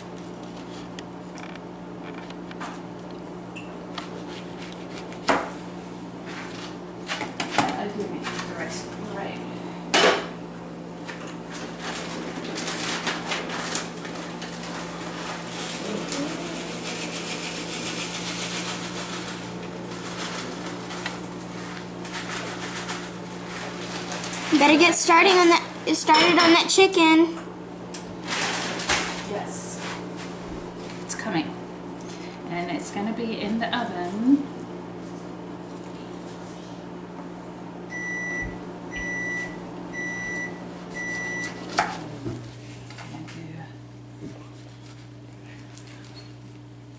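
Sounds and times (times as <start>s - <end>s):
mechanical whir with low hum: 0.0s - 46.9s
kitchen beeper high beeps: 37.9s - 41.6s.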